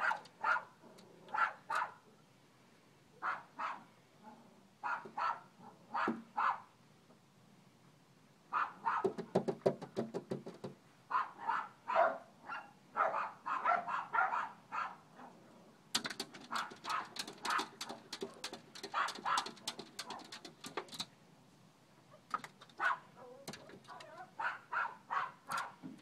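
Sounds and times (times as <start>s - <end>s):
dogs barking and yipping: 0.0s - 2.0s, 3.2s - 3.8s, 4.8s - 6.7s, 8.5s - 9.2s, 11.1s - 15.3s, 16.0s - 21.1s, 22.1s - 25.9s
rapid sharp clicks and taps: 9.0s - 10.8s, 16.0s - 21.1s.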